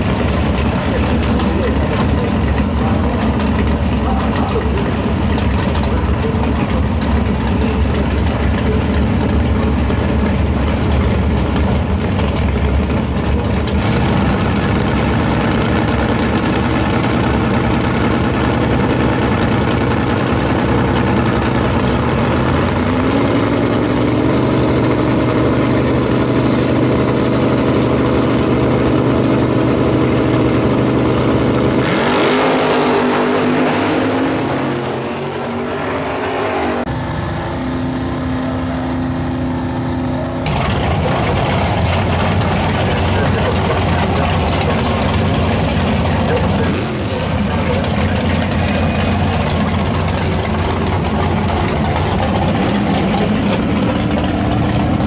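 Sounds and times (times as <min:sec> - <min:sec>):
drag car engines running: 0:00.0 - 0:55.0
engine revving: 0:00.0 - 0:55.0
cars launching at full throttle: 0:30.5 - 0:55.0.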